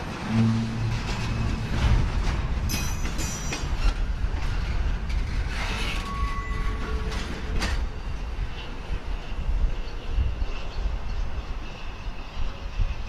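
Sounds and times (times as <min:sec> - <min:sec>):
train wheels rumbling on rails: 0:00.0 - 0:13.0
metallic clanks and creaks: 0:00.2 - 0:07.9
high wheel squeal: 0:05.5 - 0:08.7.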